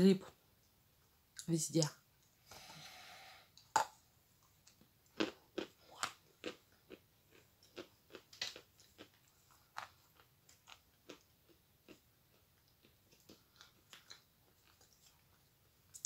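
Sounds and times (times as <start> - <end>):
teeth crunching chalk: 4.5 - 16.0.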